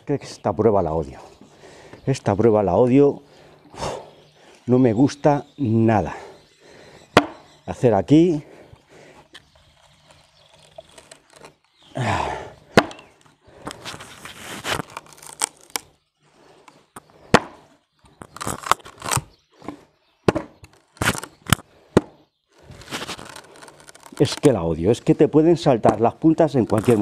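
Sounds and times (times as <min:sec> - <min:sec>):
wooden board cracking: 0:07.2 - 0:07.4, 0:09.3 - 0:11.9, 0:12.7 - 0:16.0, 0:16.9 - 0:25.2, 0:25.8 - 0:27.0
blade scraping on wood: 0:26.5 - 0:27.0.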